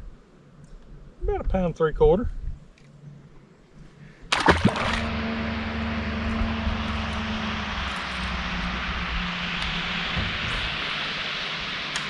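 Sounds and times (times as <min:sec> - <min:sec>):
boat outboard motor droning: 0:04.3 - 0:12.0.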